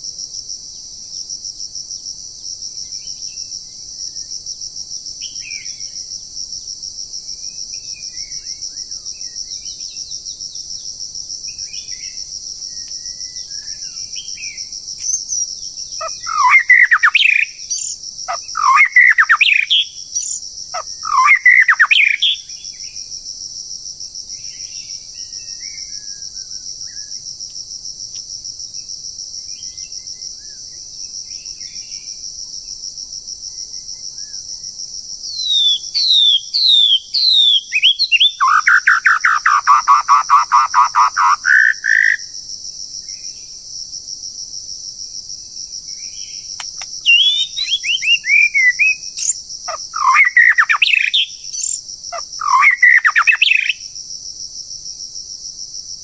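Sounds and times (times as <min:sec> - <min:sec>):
insects droning: 0:00.0 - 0:56.0
songbird whistling and trilling: 0:15.0 - 0:22.5, 0:35.3 - 0:42.2, 0:46.6 - 0:51.8, 0:52.4 - 0:53.8.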